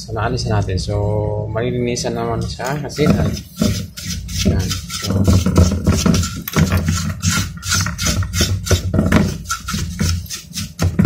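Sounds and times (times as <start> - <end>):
brush scrubbing circuit board: 2.9 - 11.0.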